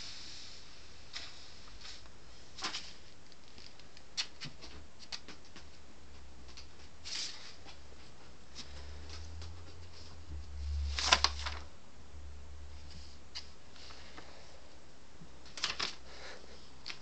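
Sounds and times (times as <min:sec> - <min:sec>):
paper rustling: 0:01.1 - 0:05.4, 0:10.7 - 0:11.7, 0:15.4 - 0:17.0.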